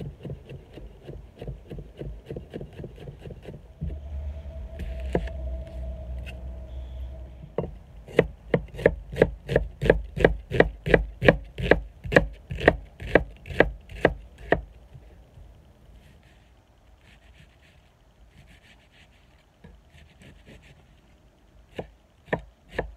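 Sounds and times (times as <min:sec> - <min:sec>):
steady low hum: 0:00.0 - 0:22.9
knife chopping on wooden board: 0:08.2 - 0:14.6.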